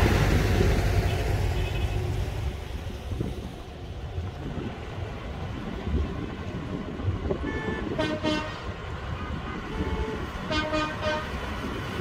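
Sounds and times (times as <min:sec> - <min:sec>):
tractor engines rumbling: 0:00.0 - 0:12.0
tractor horns tooting: 0:09.7 - 0:11.3.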